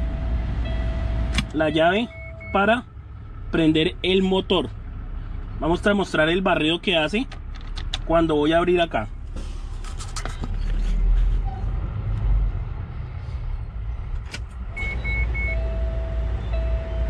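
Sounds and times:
short high beeps: 2.1s - 2.6s.

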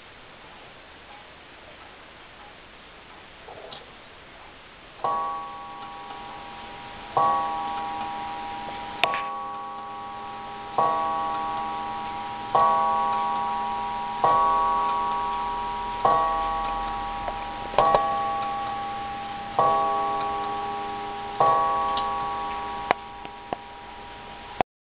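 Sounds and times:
clock movement clicks: 5.0s - 24.6s
clock striking: 5.0s - 24.6s.

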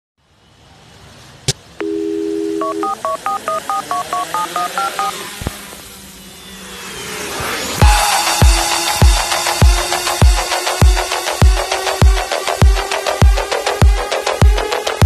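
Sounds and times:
dial tone: 1.8s - 5.2s
touch-tone keypad beeps: 1.8s - 5.2s.

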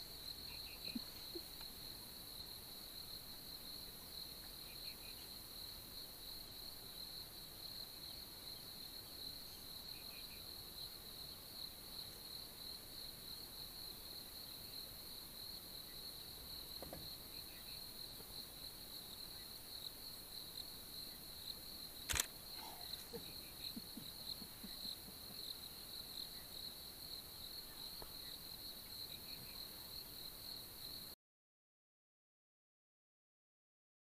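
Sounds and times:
high-pitched insect chorus: 0.0s - 31.1s
sharp click: 22.1s - 22.3s.

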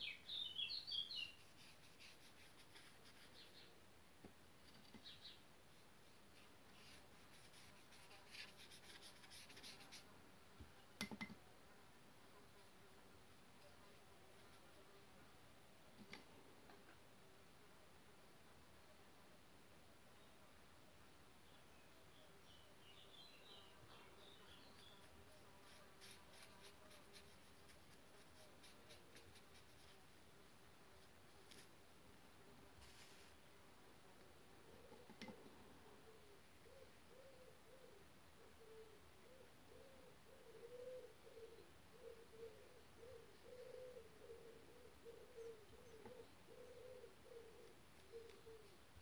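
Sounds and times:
pen scratching on newspaper: 6.8s - 10.0s, 24.8s - 30.0s.

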